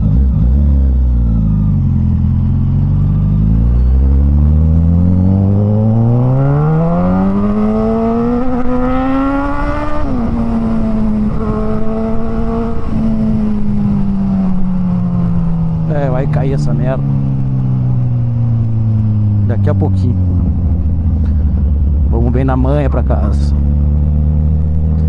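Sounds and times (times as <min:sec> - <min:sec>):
motorcycle engine revving: 0:00.0 - 0:25.0.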